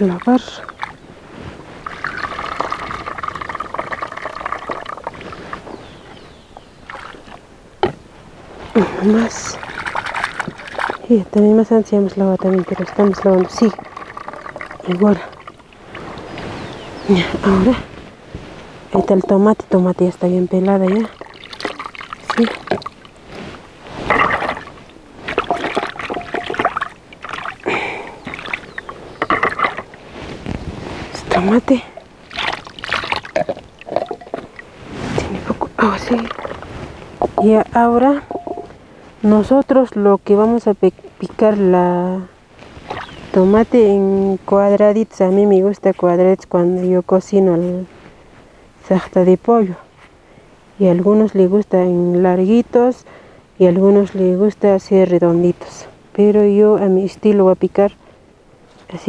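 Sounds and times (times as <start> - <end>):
water pouring and splashing: 0.0 - 6.0, 6.8 - 7.5, 8.6 - 17.7, 20.5 - 38.7, 42.6 - 43.4
knocks against bowl: 38.3 - 38.7.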